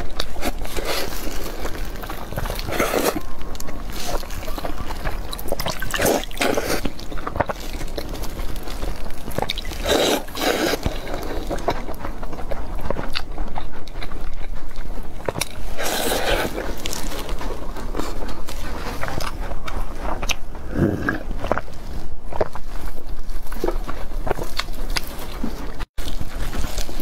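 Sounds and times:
wet chewing and sucking: 0:00.0 - 0:27.0
loud slurps: 0:09.4 - 0:11.8, 0:15.7 - 0:17.3.

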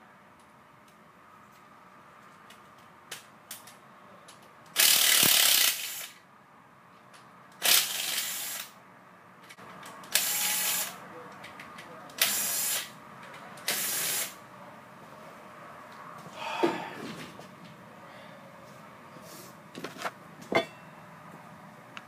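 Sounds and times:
cordless power driver bursts: 0:04.8 - 0:06.2, 0:07.6 - 0:08.7.

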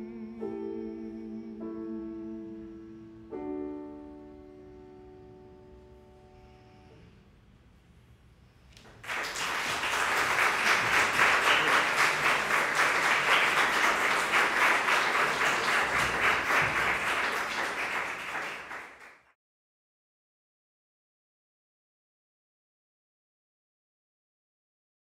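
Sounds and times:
audience applauding: 0:08.8 - 0:19.3.

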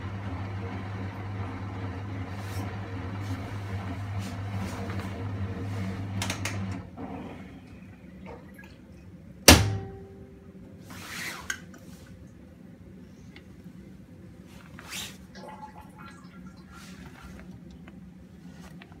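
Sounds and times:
washing machine humming: 0:00.0 - 0:11.0, 0:12.4 - 0:19.0
soft rustle: 0:14.4 - 0:15.3, 0:18.3 - 0:19.0.

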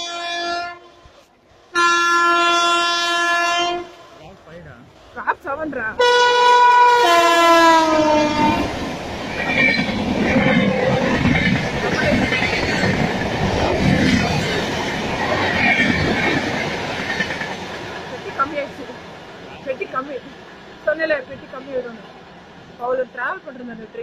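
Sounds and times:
locomotive horn long blast: 0:00.0 - 0:04.2, 0:06.0 - 0:08.8
train rumbling past: 0:00.0 - 0:24.0
wheel clatter over rail joints: 0:09.0 - 0:18.8.

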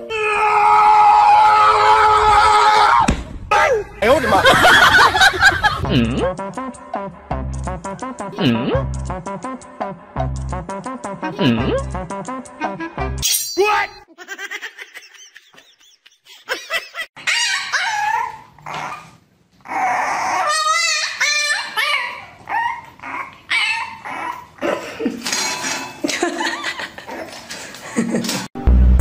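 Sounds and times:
puppy barking and yelping: 0:17.2 - 0:24.6.

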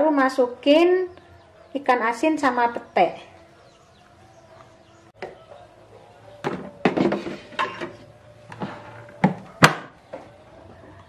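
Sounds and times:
rice cooker knocks and thunks: 0:06.4 - 0:07.4, 0:09.2 - 0:09.9.

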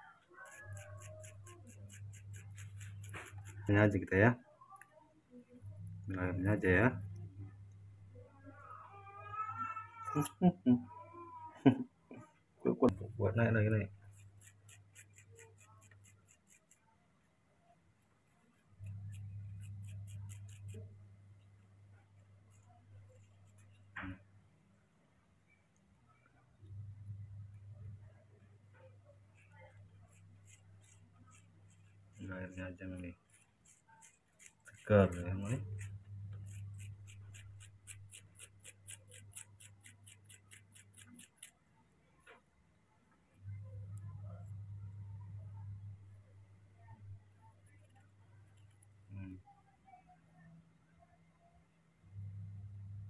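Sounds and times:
low steady hum: 0:01.1 - 0:09.0, 0:17.0 - 0:53.0
metal spoon scraping pear flesh: 0:29.9 - 0:41.5.

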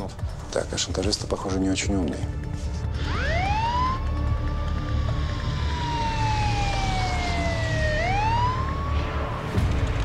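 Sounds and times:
emergency vehicle siren wailing: 0:03.0 - 0:09.6.

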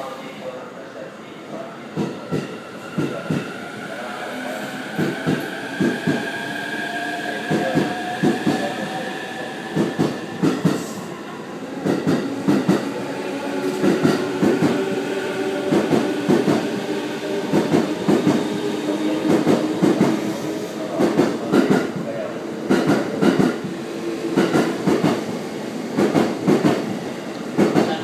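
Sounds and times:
train wheels clacking: 0:22.7 - 0:23.6, 0:24.4 - 0:25.2.

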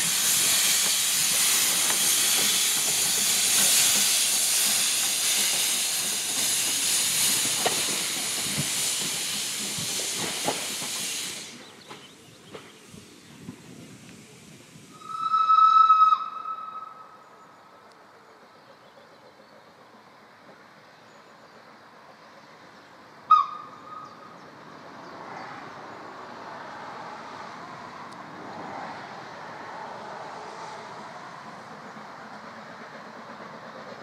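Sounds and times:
steam locomotive and train running: 0:00.0 - 0:34.0
steam locomotive whistle: 0:14.9 - 0:17.2.

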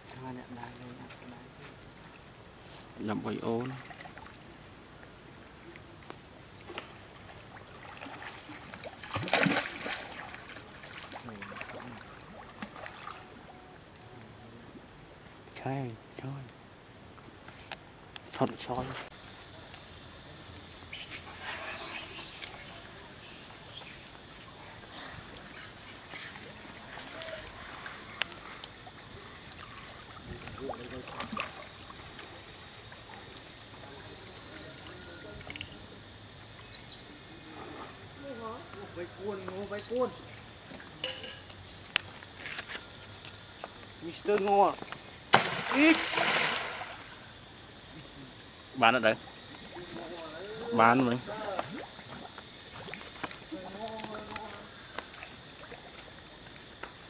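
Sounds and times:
water splashing and sloshing: 0:00.0 - 0:14.3, 0:22.0 - 0:36.1, 0:39.5 - 0:57.0
loud splash: 0:09.0 - 0:10.3, 0:45.3 - 0:47.2.

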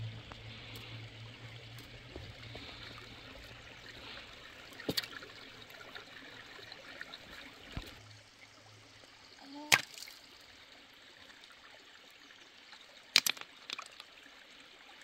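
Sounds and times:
low hum: 0:00.0 - 0:08.9
water trickling: 0:00.0 - 0:15.0.

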